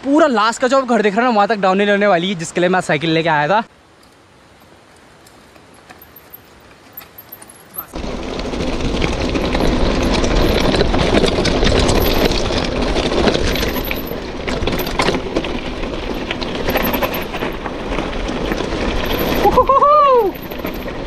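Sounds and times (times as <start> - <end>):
bike rattling: 4.0 - 21.0
tyres crunching over stones: 4.0 - 21.0
wind rumble on microphone: 8.0 - 21.0.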